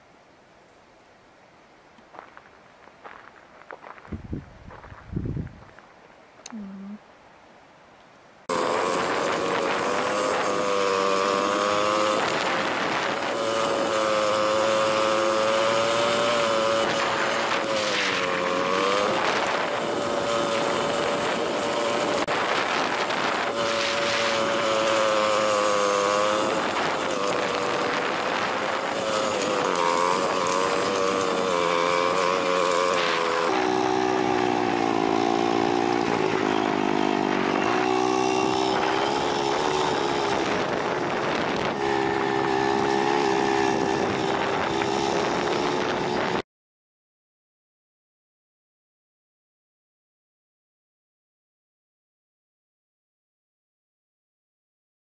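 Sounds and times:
wind and road noise: 0:00.0 - 0:46.4
vehicle engine running: 0:08.5 - 0:46.4.

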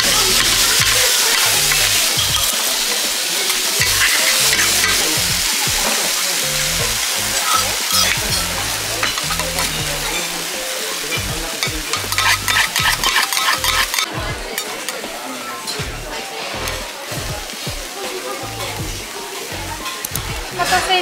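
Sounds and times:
metal spatulas chopping and scraping: 0:00.0 - 0:05.2, 0:07.4 - 0:10.4, 0:11.1 - 0:15.0
cabbage sizzling on a griddle: 0:00.0 - 0:21.0.

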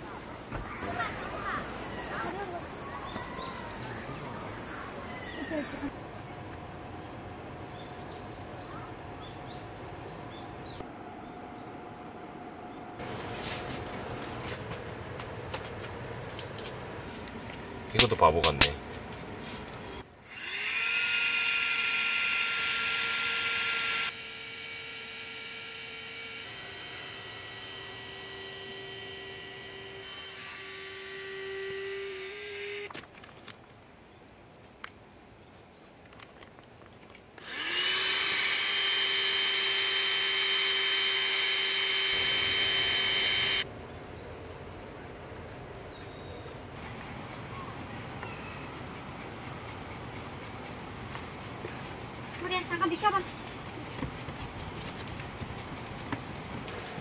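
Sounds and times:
electric air pump whirring: 0:16.6 - 0:33.5, 0:36.9 - 0:43.7.

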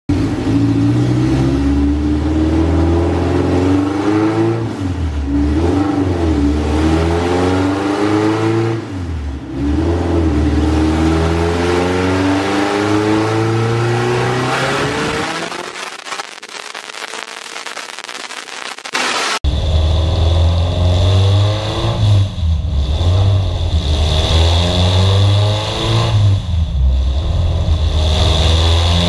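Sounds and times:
car engine revving at full throttle: 0:00.1 - 0:29.0.

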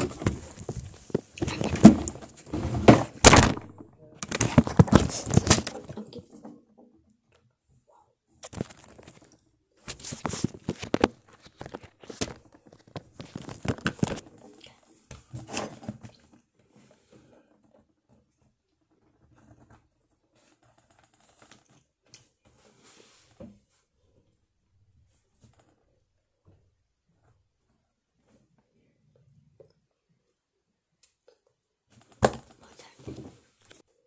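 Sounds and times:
rustling and scraping: 0:00.0 - 0:06.8, 0:08.4 - 0:24.0.

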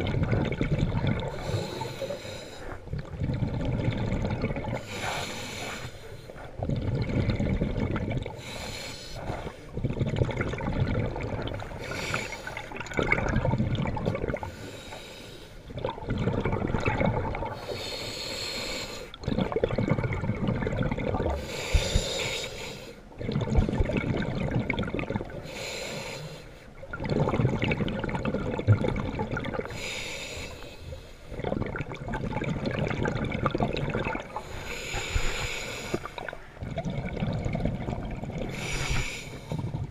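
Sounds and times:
exhaled bubbles gurgling: 0:00.0 - 0:15.0, 0:15.6 - 0:39.9
regulator breathing hiss: 0:04.8 - 0:06.3, 0:17.6 - 0:19.1, 0:21.4 - 0:23.0, 0:25.4 - 0:26.6, 0:29.7 - 0:31.3, 0:34.4 - 0:36.2, 0:38.5 - 0:39.6.

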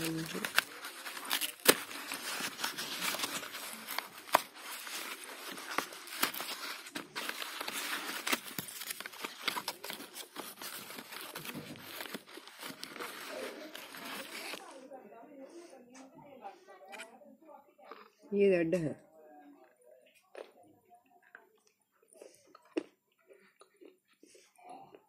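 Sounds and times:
paper packet crinkling: 0:00.0 - 0:14.8.

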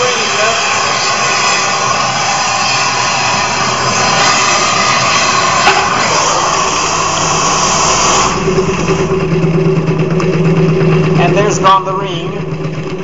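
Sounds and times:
torch flame hissing: 0:00.0 - 0:09.2
spinning casting arm hum: 0:00.0 - 0:13.0.

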